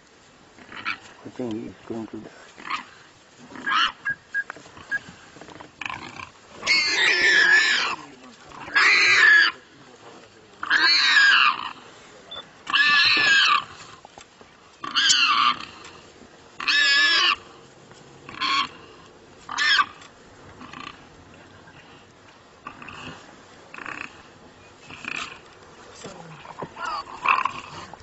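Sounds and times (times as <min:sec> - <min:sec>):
warthog squealing in distress: 0:02.6 - 0:05.2, 0:05.8 - 0:08.0, 0:08.6 - 0:09.6, 0:10.6 - 0:14.0, 0:14.8 - 0:15.9, 0:16.6 - 0:17.5, 0:18.3 - 0:18.8, 0:19.5 - 0:20.0, 0:26.5 - 0:28.0.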